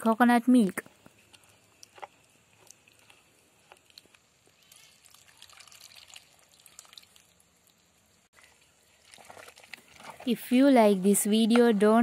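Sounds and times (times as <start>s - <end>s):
coconut milk squelching: 0.9s - 12.0s
liquid pouring into a pot: 4.5s - 7.6s.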